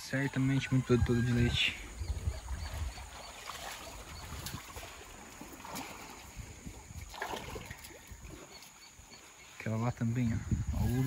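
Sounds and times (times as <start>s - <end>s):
water sloshing and splashing: 1.8s - 9.6s.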